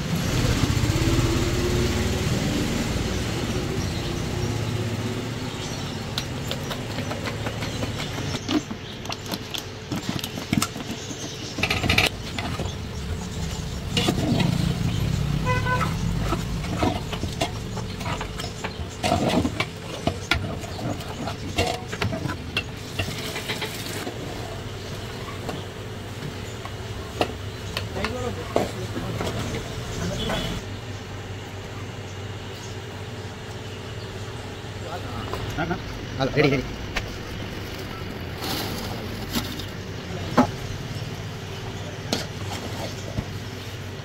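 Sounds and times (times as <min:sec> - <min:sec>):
low rumble of traffic: 0:00.0 - 0:44.0
vehicle horn toot: 0:15.4 - 0:16.1, 0:30.1 - 0:30.6.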